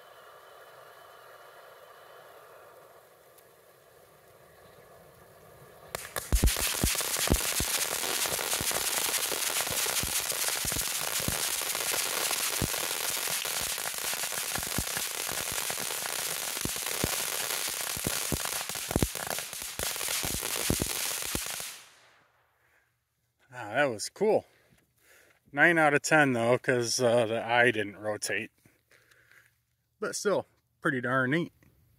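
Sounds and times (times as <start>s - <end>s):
fountain firework hissing and crackling: 0.0s - 4.1s, 5.7s - 22.1s.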